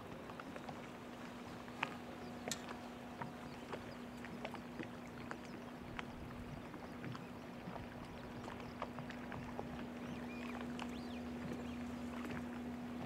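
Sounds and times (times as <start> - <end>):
boat hulls clicking and knocking: 0.0 - 13.0
small waves lapping: 0.0 - 13.0
low hum: 7.9 - 13.0.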